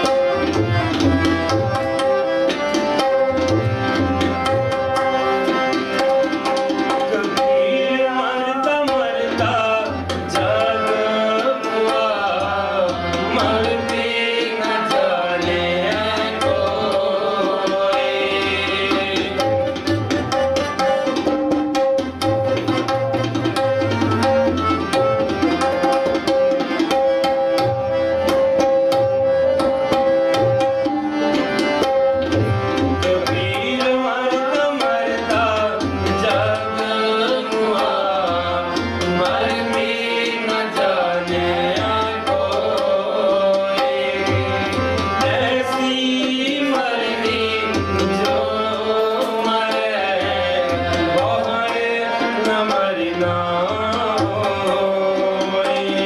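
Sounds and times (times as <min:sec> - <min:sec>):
harmonium chords: 0:00.0 - 0:56.0
tabla rhythm: 0:00.0 - 0:56.0
man singing: 0:07.0 - 0:19.8, 0:33.0 - 0:56.0.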